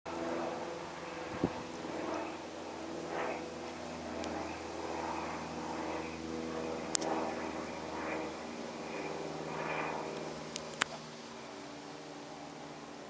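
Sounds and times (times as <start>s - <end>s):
propeller plane drone: 0.1s - 13.0s
sharp click: 6.9s - 7.1s.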